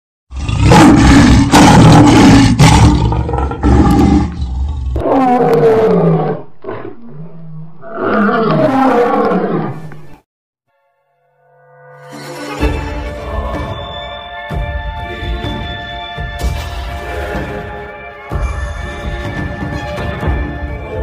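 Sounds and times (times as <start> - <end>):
lion roaring: 0.3 - 10.1.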